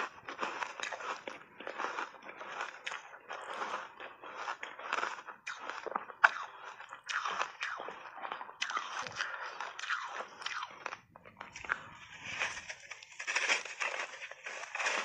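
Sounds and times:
ice being chewed and crunched: 0.0 - 15.0.

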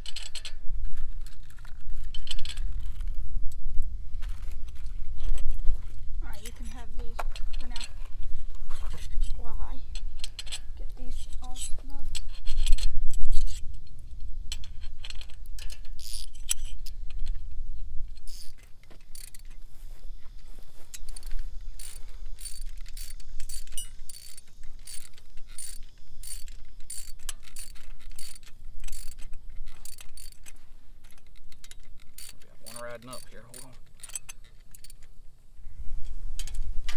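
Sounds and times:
ratchet wrench clicking: 0.0 - 0.6, 9.0 - 17.4, 18.1 - 19.6, 20.9 - 35.1
wind rumble on microphone: 0.0 - 32.2, 35.5 - 36.9.

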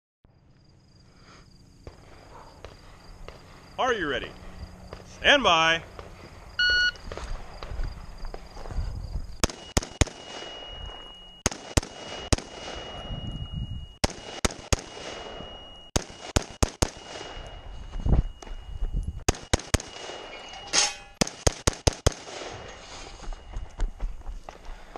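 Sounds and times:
electronic start beep: 6.6 - 7.0
rifle shots: 9.4 - 10.7, 11.4 - 13.1, 14.0 - 17.6, 19.3 - 20.4, 21.2 - 22.7.

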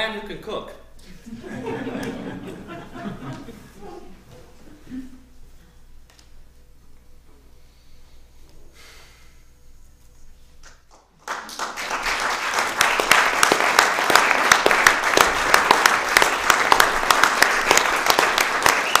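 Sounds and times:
audience applauding: 10.9 - 19.0.

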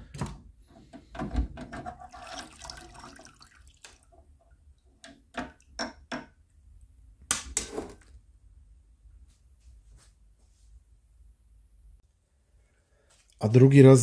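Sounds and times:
water splashing and dripping: 2.0 - 5.9.

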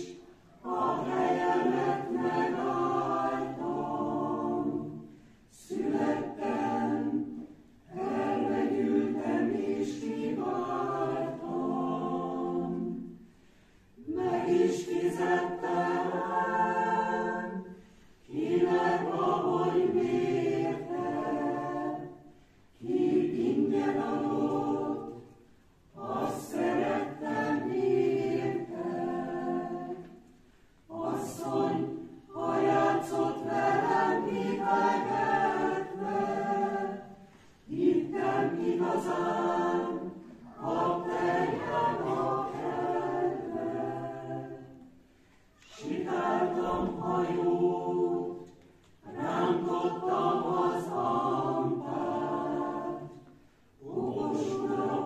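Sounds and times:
mixed choir singing a cappella: 0.0 - 55.0
singers breathing: 5.0 - 5.5, 13.2 - 14.0, 17.7 - 18.2.

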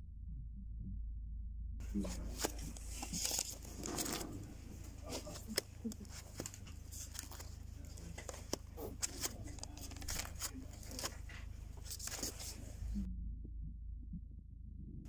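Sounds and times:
steady low hum: 0.0 - 15.0
record sleeves rustling and flicking: 1.8 - 13.1.

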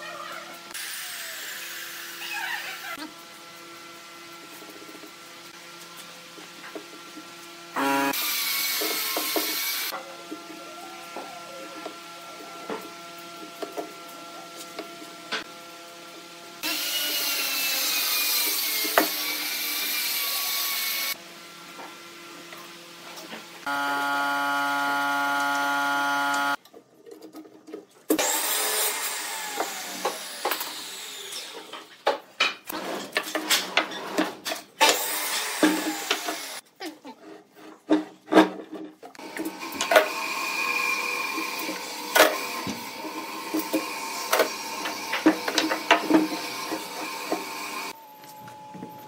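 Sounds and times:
steady machine hum: 23.7 - 26.6.

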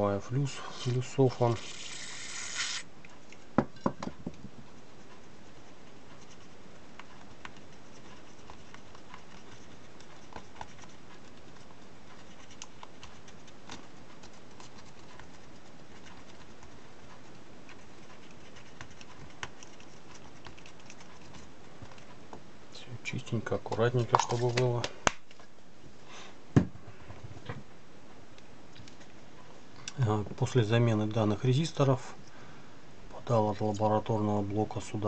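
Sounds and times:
cotton swab scratching: 0.9 - 2.9, 4.9 - 22.0.

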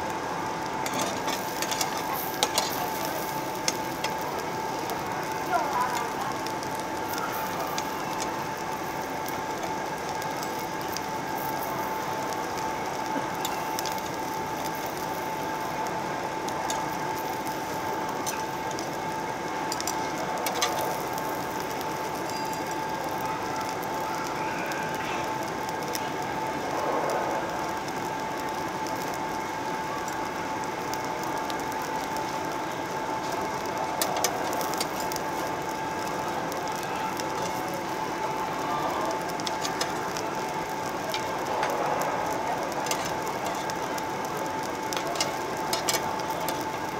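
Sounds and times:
food sizzling on a grill: 0.0 - 46.9
metal tongs clicking on grill: 0.8 - 4.2, 13.3 - 15.2, 16.6 - 19.1, 19.7 - 23.8, 33.6 - 35.3, 39.0 - 41.8, 42.6 - 46.9.

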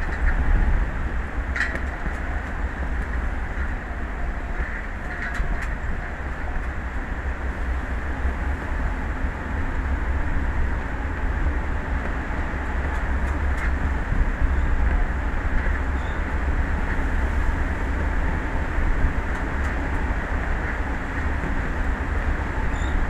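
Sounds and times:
wind: 0.0 - 23.0
sea rushing: 5.8 - 23.0.

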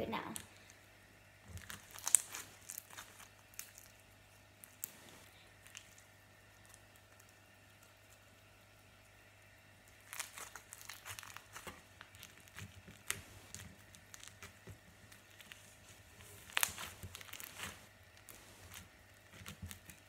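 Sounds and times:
slime crackling and popping: 1.4 - 20.0.

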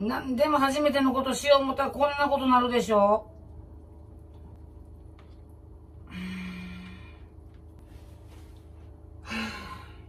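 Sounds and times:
woman sighing: 6.1 - 7.2, 9.2 - 10.0.

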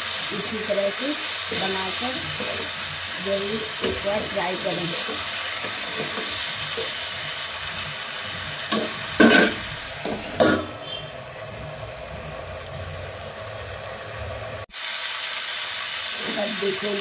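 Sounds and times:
vegetables sizzling in a pan: 0.0 - 17.0
metal spatula stirring: 1.5 - 11.1
metal lid clanking on pan: 8.7 - 10.9.

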